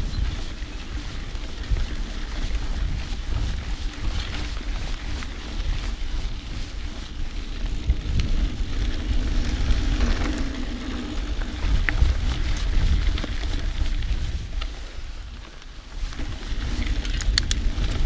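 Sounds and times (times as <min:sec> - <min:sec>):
bike tyres rolling on dirt: 0:00.0 - 0:18.0
wind rumble on microphone: 0:00.0 - 0:18.0
clicks and knocks from stones: 0:16.9 - 0:17.6.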